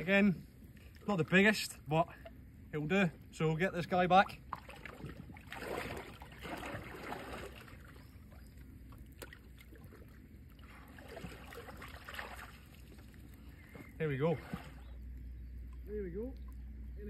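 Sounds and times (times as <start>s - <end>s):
shallow seawater splashing: 4.5s - 13.5s, 14.2s - 15.0s.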